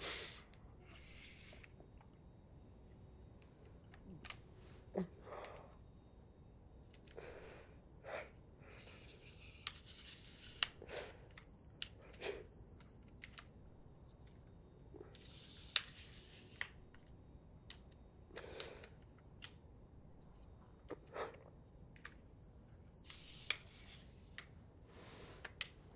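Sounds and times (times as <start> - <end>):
small clicks and taps: 18.6 - 19.6, 21.9 - 22.2.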